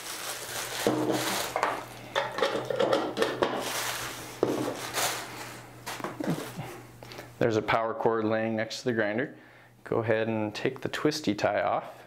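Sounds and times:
plastic bag crinkling: 0.0 - 2.3, 3.4 - 6.6.

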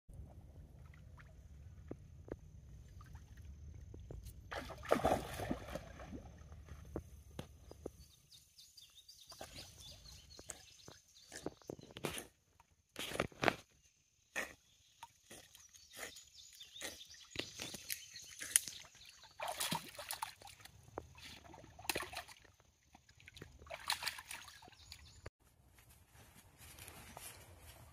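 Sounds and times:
water sloshing and splashing: 2.7 - 7.5, 17.3 - 25.3.

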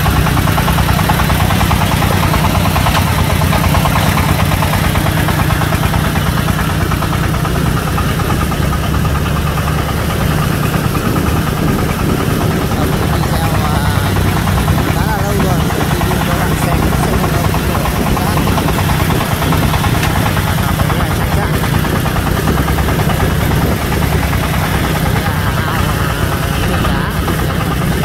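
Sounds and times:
diesel truck engine running: 0.0 - 28.0.

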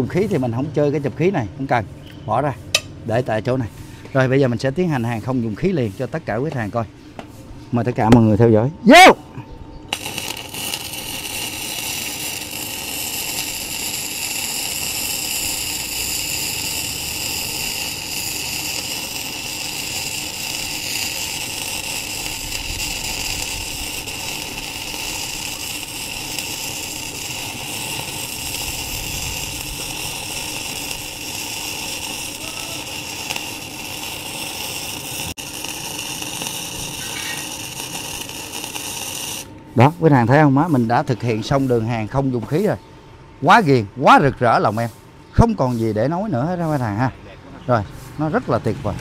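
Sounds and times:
welding arc: 9.9 - 40.9.

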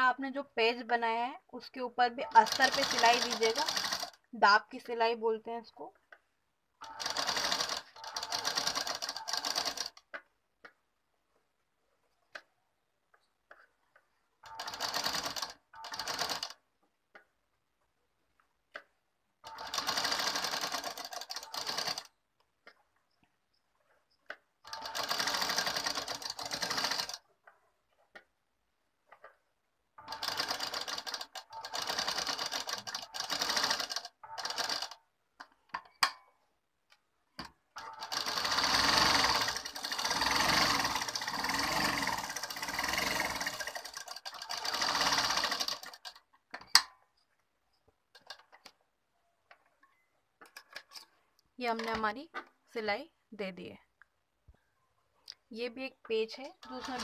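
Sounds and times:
sewing machine stitching fabric: 2.2 - 4.2, 6.8 - 10.2, 13.5 - 16.6, 19.4 - 22.2, 23.9 - 28.1, 30.0 - 35.0, 37.7 - 46.8, 48.1 - 48.7, 56.4 - 57.0.

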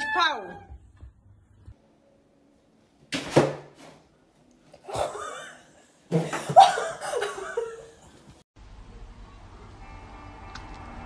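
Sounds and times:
person laughing: 6.2 - 8.0.

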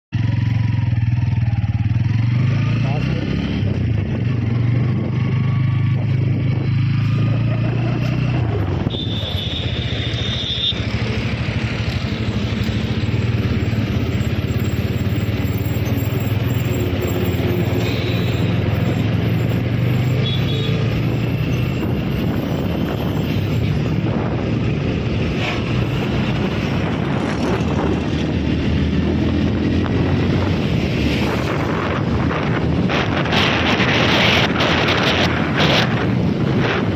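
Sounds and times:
road and wind noise: 0.1 - 36.9
motorcycle engine running: 0.2 - 19.4.

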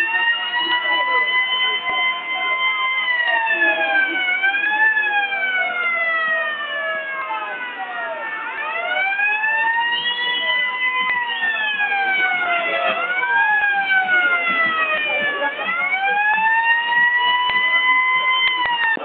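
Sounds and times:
crowd noise: 0.0 - 19.0
wailing siren: 0.0 - 19.0.

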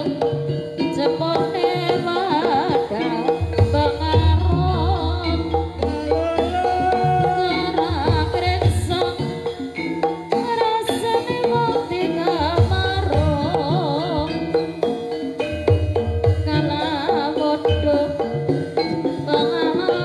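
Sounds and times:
metallophone notes: 0.0 - 20.0
person singing wavering vocal: 1.1 - 9.8
drum beat: 1.2 - 19.6.

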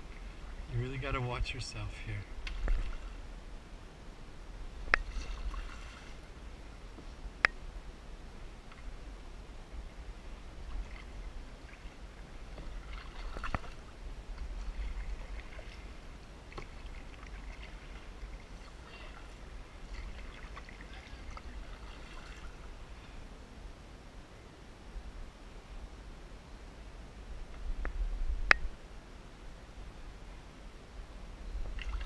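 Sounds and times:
low steady rumble: 0.0 - 32.0
paddle strokes splashing water: 2.4 - 3.3, 4.8 - 6.8, 10.6 - 22.8, 31.7 - 32.0.

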